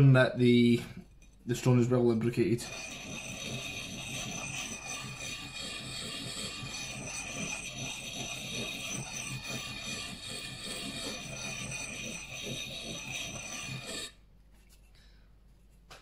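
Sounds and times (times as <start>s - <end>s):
sharpening stone grinding axe blade: 2.6s - 14.2s.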